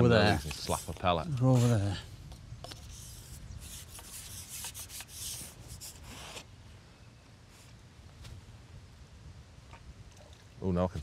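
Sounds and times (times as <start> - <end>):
scratchy rubbing and scraping: 0.0 - 2.0, 2.6 - 6.5.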